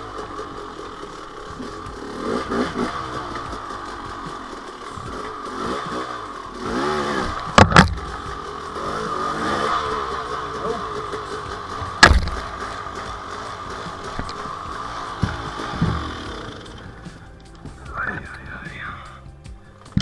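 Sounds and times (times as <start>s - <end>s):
dirt bike engine with throttle blips: 0.0s - 20.0s
sharp knocks: 7.5s - 8.1s, 11.8s - 12.9s, 14.0s - 17.8s.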